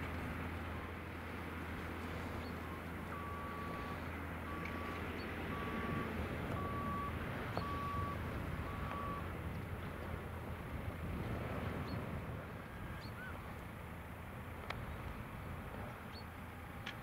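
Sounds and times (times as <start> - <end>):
tractor diesel engine under load: 0.0 - 17.0
electronic beeps: 6.6 - 9.2.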